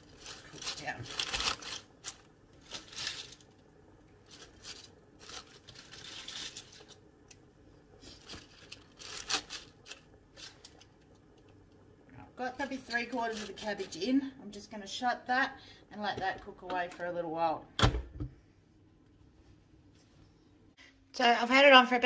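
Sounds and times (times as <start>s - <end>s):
cabbage leaves rustling in pot: 0.0s - 7.4s, 8.0s - 11.1s, 12.4s - 14.2s.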